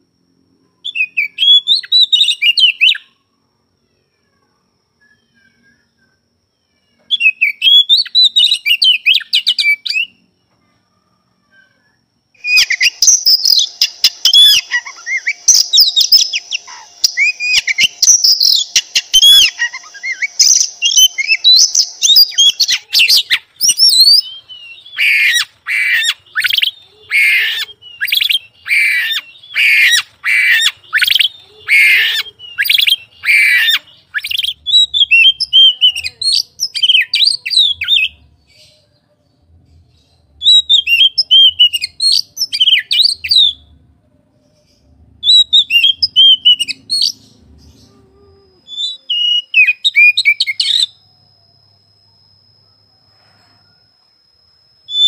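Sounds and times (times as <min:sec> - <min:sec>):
bird singing whistled phrases: 0:00.8 - 0:03.1, 0:06.8 - 0:10.2, 0:12.4 - 0:38.9, 0:40.4 - 0:43.7, 0:45.2 - 0:48.0, 0:48.6 - 0:51.0
bird harsh notes: 0:12.4 - 0:36.0.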